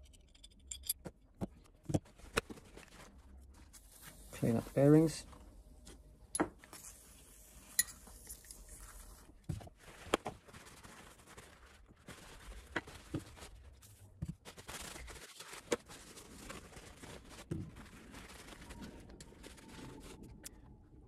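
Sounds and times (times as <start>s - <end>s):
metal parts clinking: 0.0s - 1.0s
paper towel rustling: 8.7s - 20.3s.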